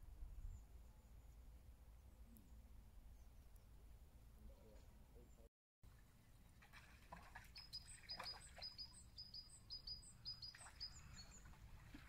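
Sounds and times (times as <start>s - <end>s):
faint songbird singing: 7.4s - 12.0s.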